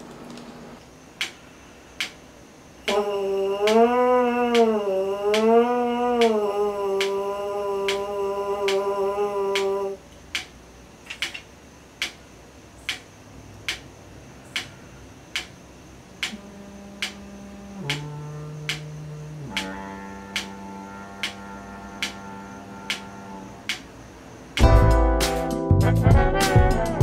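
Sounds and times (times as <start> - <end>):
trombone mouthpiece buzzing: 2.8 - 10.0, 16.2 - 24.0, 25.0 - 27.0
metronome clicking: 7.9 - 8.1, 10.3 - 10.5, 11.1 - 12.2, 12.8 - 13.9, 14.5 - 15.6, 16.2 - 16.4, 17.0 - 17.2, 17.8 - 20.6, 21.2 - 21.4, 22.0 - 22.2, 22.9 - 23.9.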